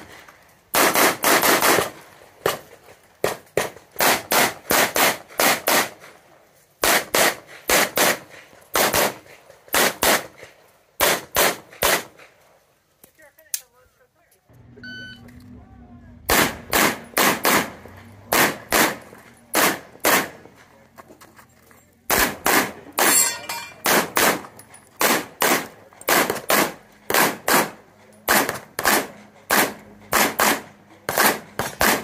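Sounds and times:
rapid pistol fire: 0.7 - 2.6, 3.2 - 6.0, 6.8 - 10.4, 11.0 - 12.2, 16.3 - 20.4, 22.1 - 23.2, 23.8 - 32.0.

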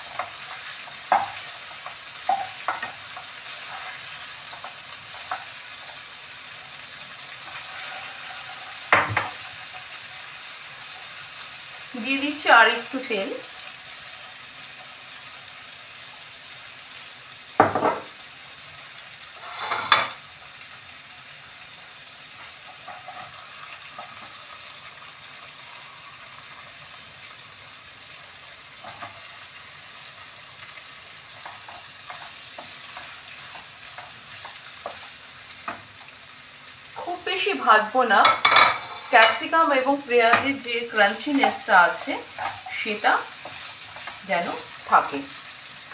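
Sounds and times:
loud sizzle bursts: 0.0 - 45.9
vegetables sizzling in oil: 0.0 - 45.9
wooden spatula scraping a pan: 0.1 - 6.0, 7.3 - 10.0, 19.3 - 20.2, 22.4 - 24.4, 31.4 - 35.7, 38.1 - 39.4, 40.3 - 45.1.

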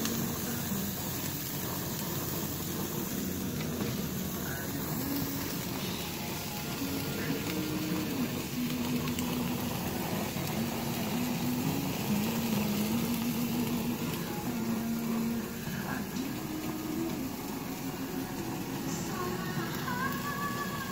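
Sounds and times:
slow melody of held notes: 0.0 - 20.9
steaks sizzling on a grill: 0.0 - 20.9.

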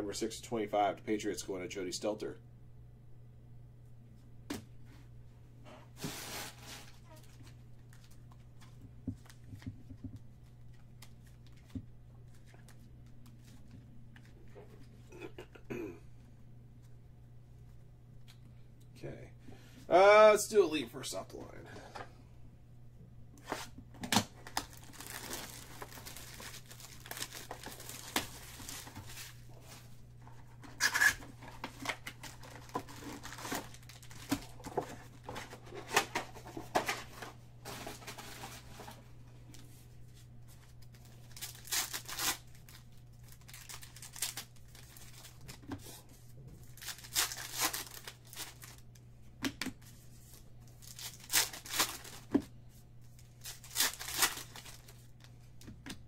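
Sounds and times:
foil packs tearing and crinkling: 24.2 - 29.5, 30.8 - 36.5, 40.9 - 45.6, 46.6 - 48.8, 50.7 - 52.3, 53.2 - 55.2.

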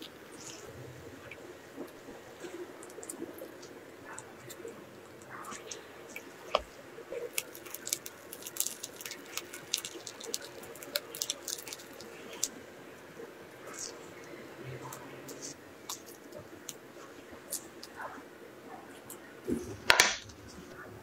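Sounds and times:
cream squishing from piping bag: 0.0 - 18.0
plastic bag crackling: 6.4 - 12.5.

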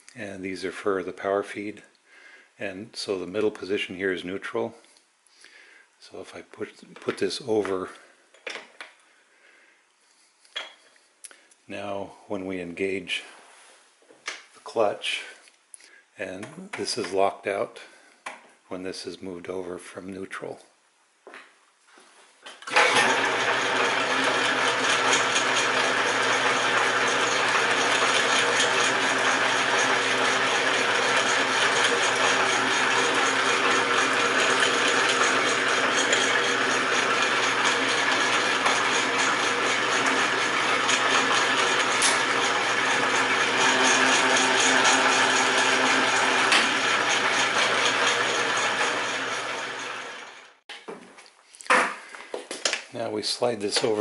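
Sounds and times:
metal lathe gears whirring: 22.7 - 50.6.

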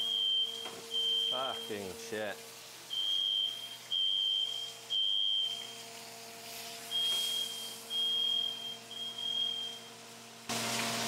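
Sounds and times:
smoke alarm beeping: 0.0 - 2.0, 2.9 - 6.0, 6.8 - 10.0.

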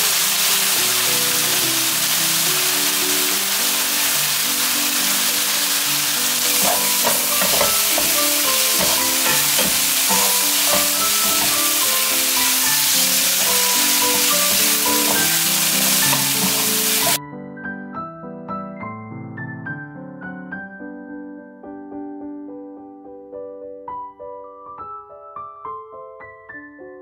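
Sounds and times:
vegetables sizzling in a pan: 0.0 - 17.2
piano music: 0.0 - 27.0
spatula scraping a pan: 6.4 - 17.2.

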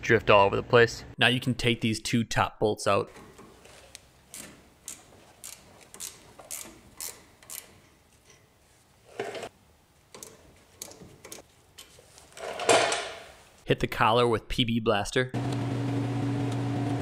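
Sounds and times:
hand ratchet clicking: 3.2 - 8.4, 10.1 - 11.9.

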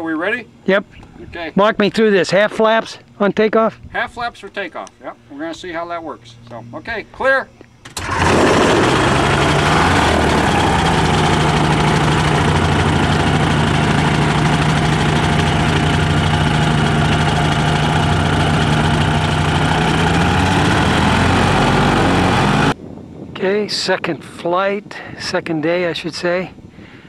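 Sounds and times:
ultralight engine and propeller idling: 7.8 - 22.8.

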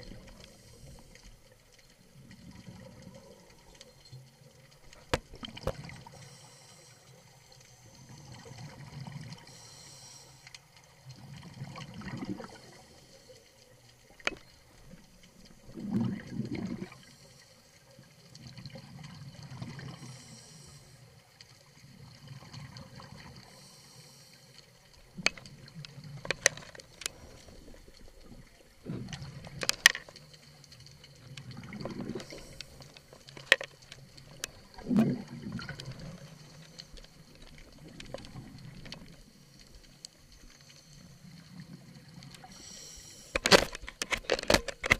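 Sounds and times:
regulator inhale hiss: 0.3 - 1.4, 6.0 - 8.1, 9.4 - 10.7, 19.9 - 21.1, 23.4 - 24.7, 32.2 - 33.0, 42.4 - 43.5
exhaled air bubbling: 2.1 - 3.7, 11.0 - 12.9, 14.0 - 17.1, 18.4 - 20.1, 24.9 - 30.0, 31.0 - 40.4.

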